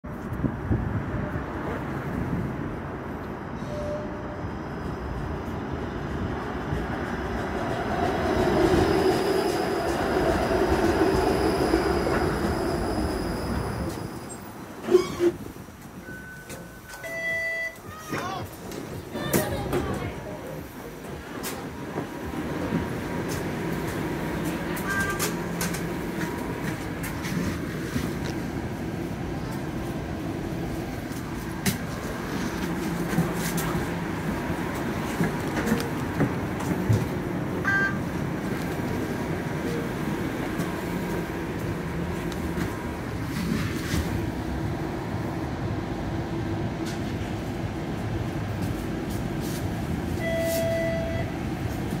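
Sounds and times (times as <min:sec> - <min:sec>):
streetcar running rumble: 0:00.1 - 0:52.0
brief beep: 0:03.6 - 0:04.4, 0:16.0 - 0:17.8, 0:24.8 - 0:25.3, 0:37.6 - 0:38.1, 0:50.2 - 0:51.3.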